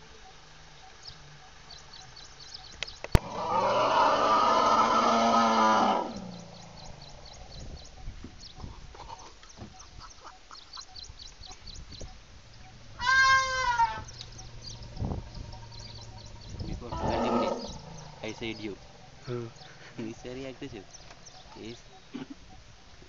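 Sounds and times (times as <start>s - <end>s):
faint high bird chirps: 0.0s - 3.4s, 5.8s - 23.0s
elephant trumpeting: 3.2s - 6.8s, 12.4s - 22.9s.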